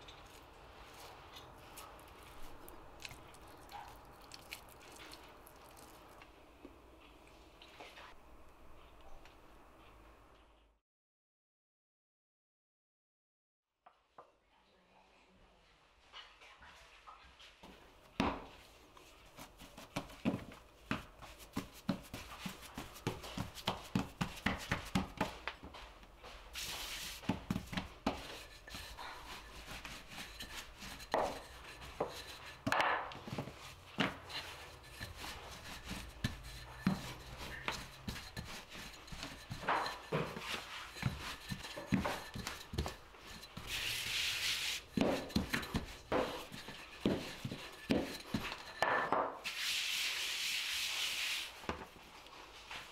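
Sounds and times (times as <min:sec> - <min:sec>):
rolling pin rubbing dough: 0:19.1 - 0:25.8, 0:26.4 - 0:51.6.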